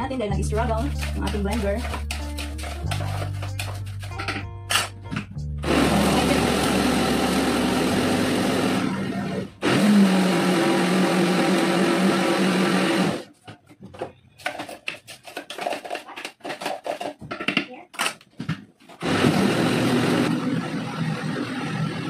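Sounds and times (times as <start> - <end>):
electric blender struggling: 5.6 - 13.3, 19.0 - 22.0.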